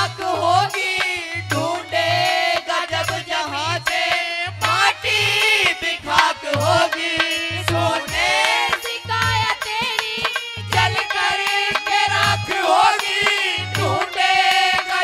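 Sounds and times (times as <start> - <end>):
man singing through microphone: 0.0 - 15.0.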